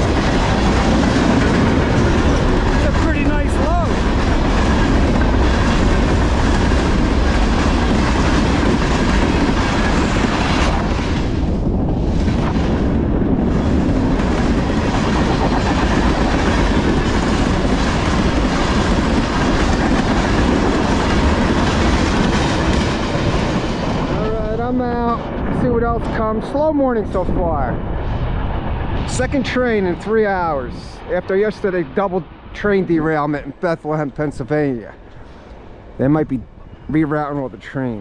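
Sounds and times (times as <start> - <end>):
train wheels on rails clattering: 0.0 - 25.3.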